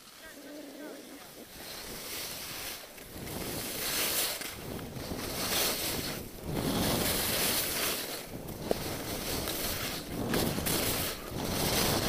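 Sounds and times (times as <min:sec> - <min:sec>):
skis scraping over snow: 0:00.0 - 0:12.0
wind on microphone: 0:01.2 - 0:12.0.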